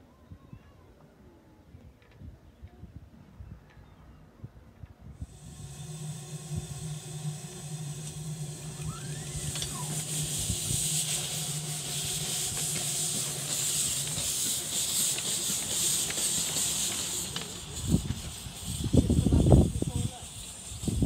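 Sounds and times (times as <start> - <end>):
steam locomotive hissing steam: 5.2 - 21.0.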